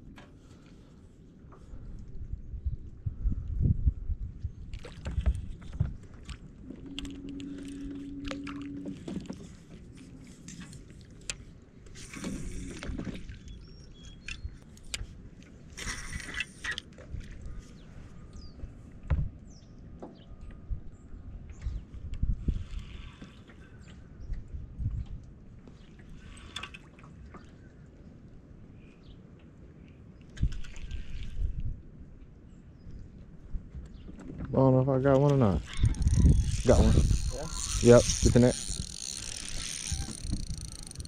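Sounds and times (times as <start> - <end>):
wind rumbling on microphone: 1.5 - 10.5, 17.0 - 26.2, 30.3 - 41.0.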